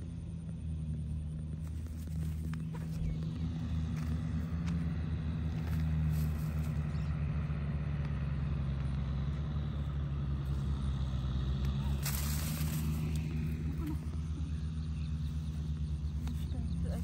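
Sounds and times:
engine humming: 0.0 - 17.0
scratchy rustle: 11.8 - 13.4.

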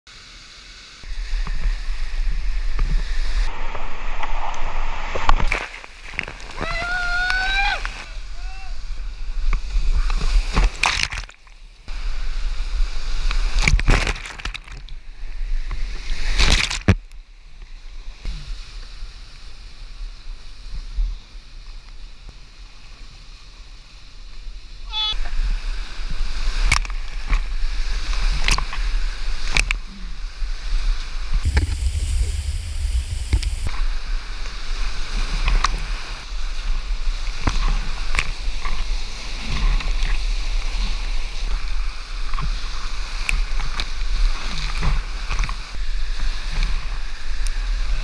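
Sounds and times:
whitewater rushing: 31.4 - 33.7.

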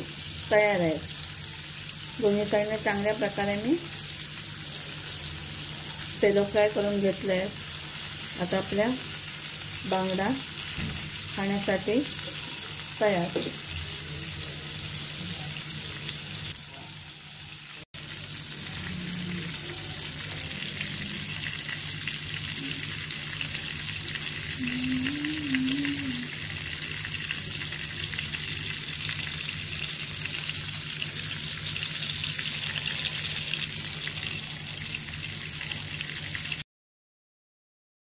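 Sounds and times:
fish sizzling in oil: 0.0 - 36.6
low hum: 24.5 - 26.3.

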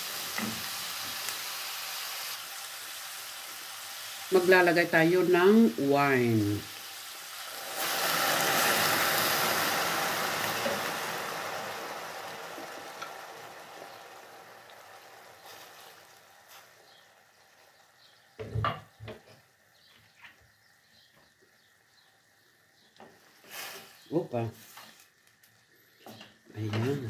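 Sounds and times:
wine sizzling in hot pot: 0.0 - 27.0.

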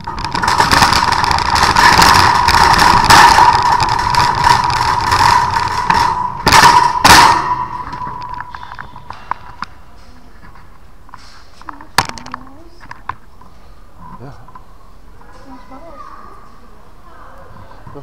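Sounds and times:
trolley rattling over tarmac: 0.0 - 8.6
trolley jolts: 0.0 - 9.0.

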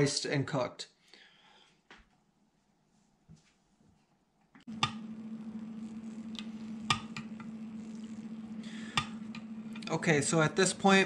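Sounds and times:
steady low hum: 4.7 - 11.0.

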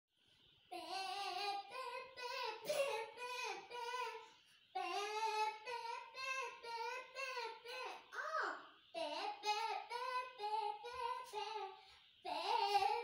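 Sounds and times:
girl singing unaccompanied: 0.7 - 13.0.

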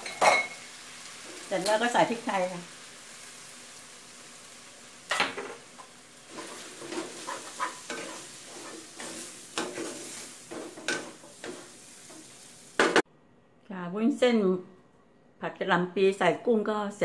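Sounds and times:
frying sizzle: 0.0 - 13.0
spatula scraping and knocking pan: 5.1 - 13.0.

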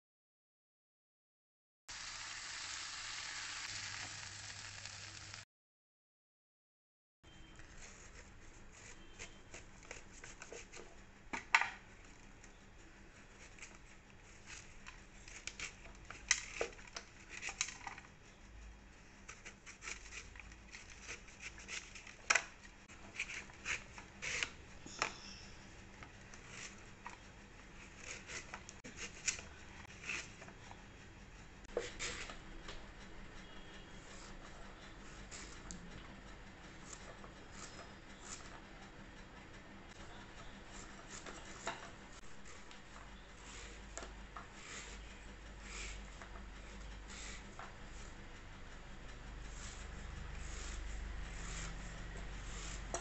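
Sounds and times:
metal scraper scraping skin: 7.8 - 10.9, 19.2 - 30.6, 36.7 - 38.6, 39.9 - 48.3, 49.1 - 53.0.

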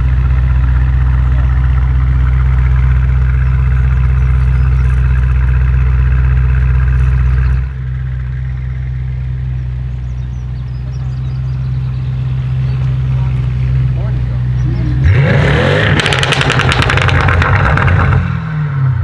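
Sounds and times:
car engine idling: 0.0 - 19.0.

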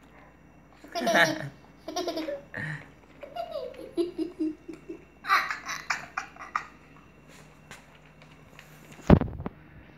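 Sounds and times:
person laughing: 0.9 - 6.8.

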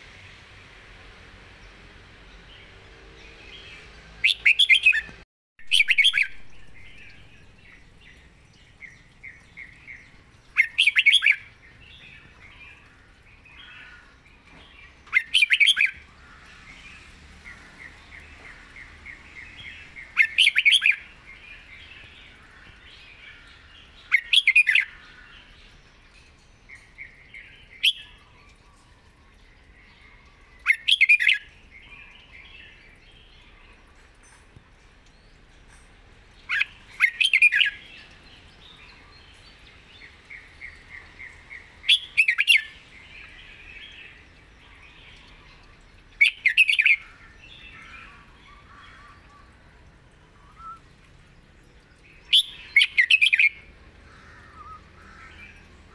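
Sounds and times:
bird singing loud phrases: 2.3 - 33.8, 36.4 - 55.9
soft bird twittering: 50.3 - 51.1.

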